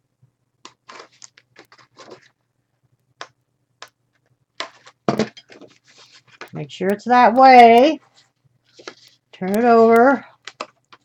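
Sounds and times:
paper rustling: 0:00.7 - 0:02.4, 0:04.6 - 0:06.6, 0:07.9 - 0:11.0.

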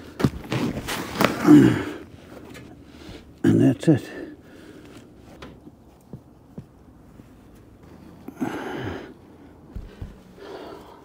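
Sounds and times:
man grunting: 0:01.4 - 0:02.0
handling noise with light taps: 0:04.8 - 0:08.3.

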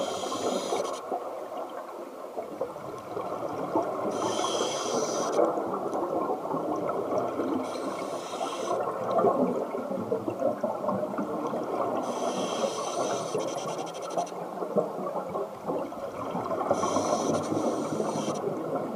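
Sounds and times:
breathing through a regulator: 0:00.0 - 0:01.0, 0:04.1 - 0:05.4, 0:07.6 - 0:08.8, 0:12.0 - 0:14.2, 0:16.7 - 0:18.5
high hiss: 0:00.0 - 0:01.0, 0:04.1 - 0:05.4, 0:07.6 - 0:08.8, 0:12.0 - 0:14.3, 0:16.7 - 0:18.5
crackling bubbling underwater background: 0:00.0 - 0:18.9.

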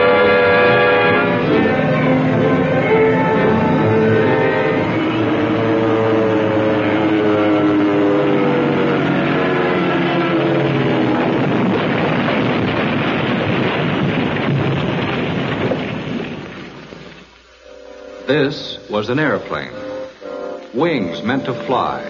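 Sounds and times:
propeller aircraft engine diving: 0:00.0 - 0:13.0
rough noisy rumble: 0:00.0 - 0:22.0.

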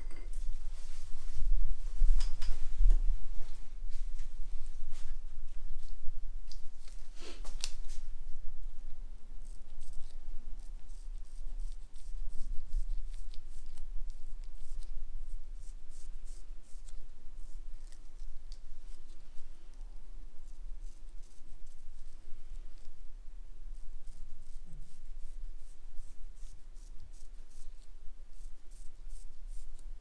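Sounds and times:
razor scraping skin: 0:09.4 - 0:19.2, 0:20.4 - 0:22.2, 0:23.7 - 0:29.9.

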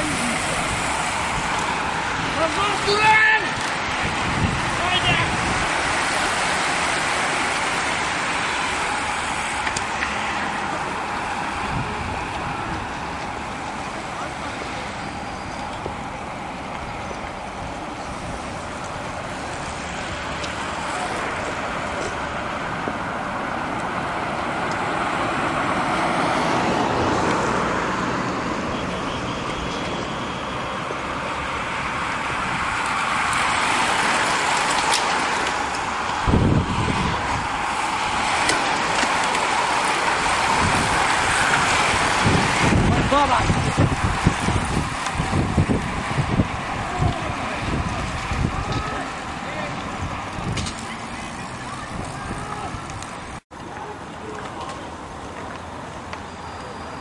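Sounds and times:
bicycle tyres rushing on asphalt: 0:00.0 - 0:57.0.

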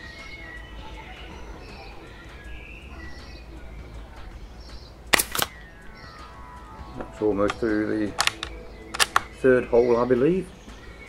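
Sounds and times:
birdsong: 0:00.0 - 0:11.0
air rifle shot crack: 0:05.1 - 0:05.6, 0:08.2 - 0:09.4.

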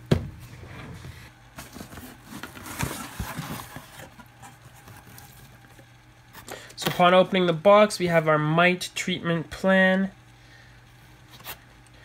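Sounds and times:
packing rustling and scraping: 0:00.6 - 0:05.8.

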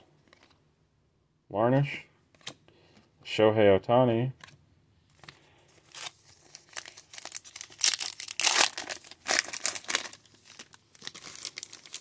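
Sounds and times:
plastic wrapper crinkling and tearing: 0:05.2 - 0:12.0.

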